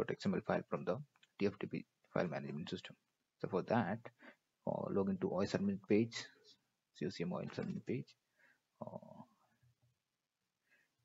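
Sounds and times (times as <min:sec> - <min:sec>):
person speaking: 0:00.0 - 0:08.2.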